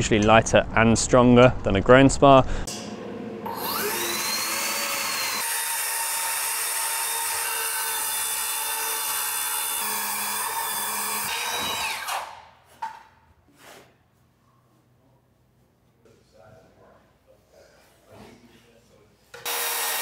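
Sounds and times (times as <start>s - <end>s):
circular saw cutting wood: 3.4s - 12.4s, 19.4s - 20.0s
saw knock: 3.5s - 13.0s.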